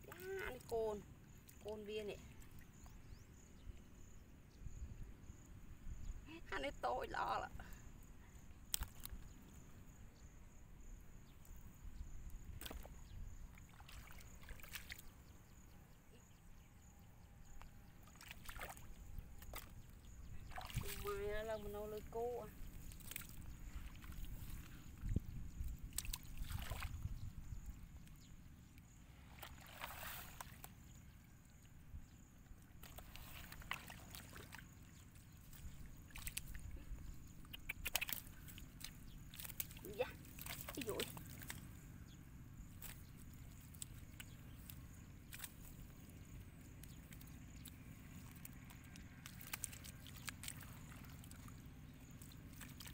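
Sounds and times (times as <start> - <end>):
sloshing in muddy water: 0.0 - 3.0, 7.2 - 9.9, 11.2 - 15.8, 17.5 - 52.9
fish thrashing in water: 20.5 - 21.2, 25.9 - 27.1, 29.3 - 30.7, 32.8 - 34.8, 37.7 - 41.9, 48.1 - 51.6.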